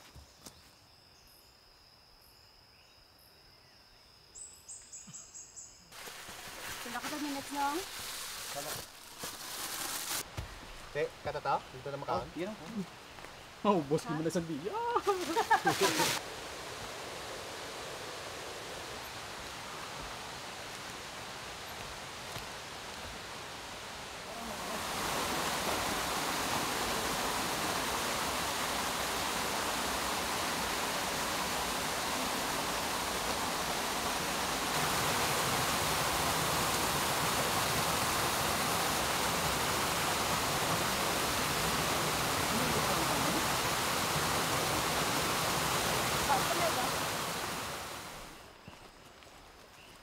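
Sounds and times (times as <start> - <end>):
waterfall pouring into pool: 6.0 - 10.2, 14.8 - 20.3, 23.7 - 48.3.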